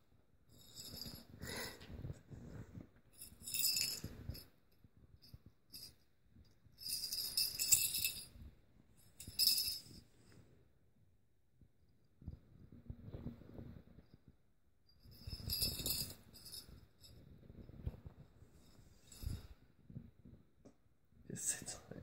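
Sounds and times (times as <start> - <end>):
small bell jingling in toy ball: 0.5 - 1.7, 3.2 - 4.5, 5.2 - 10.0, 15.0 - 17.2, 18.9 - 19.5.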